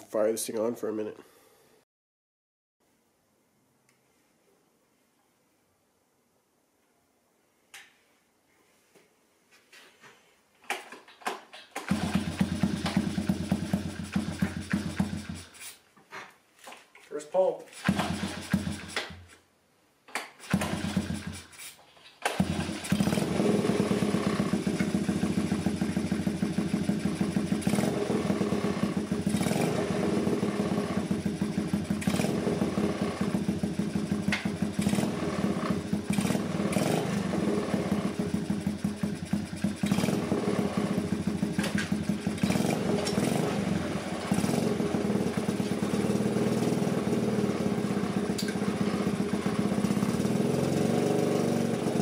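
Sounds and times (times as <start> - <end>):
engine pull-start: 11.6 - 15.7, 17.8 - 19.2, 20.4 - 29.6, 34.1 - 47.1, 47.8 - 51.8
small engine running: 11.9 - 15.5, 17.8 - 19.0, 20.4 - 21.4, 22.3 - 52.0.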